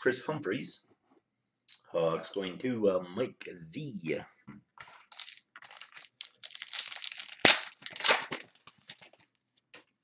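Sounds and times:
wrapper torn open and crinkled: 0:05.1 - 0:09.4.

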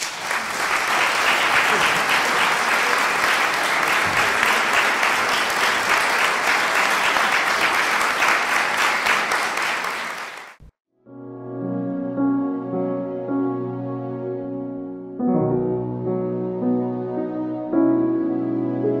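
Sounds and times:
audience applauding: 0:00.0 - 0:10.7.

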